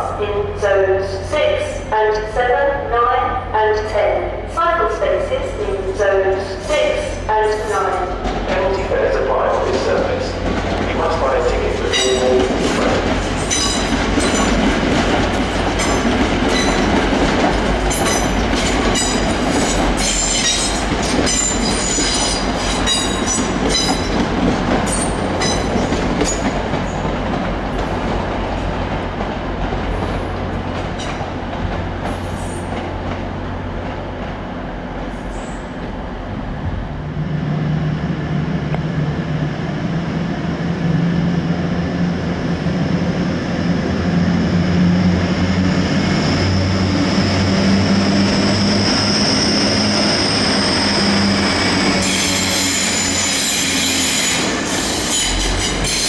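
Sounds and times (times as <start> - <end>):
diesel train engine drone: 0.0 - 56.0
train wheels squealing and clattering: 11.9 - 14.6, 15.4 - 17.0, 17.8 - 27.1, 30.0 - 31.3, 32.0 - 32.9, 35.0 - 35.8, 48.1 - 56.0.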